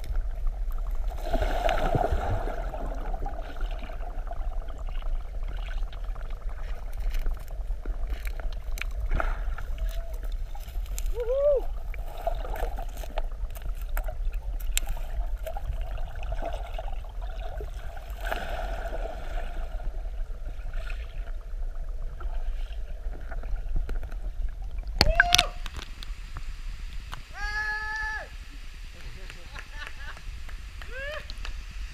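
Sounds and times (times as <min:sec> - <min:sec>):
underwater clicks and bubbling: 0:00.0 - 0:27.3
underwater rumble of moving water: 0:00.0 - 0:27.3
splash: 0:01.0 - 0:07.4, 0:14.6 - 0:19.9.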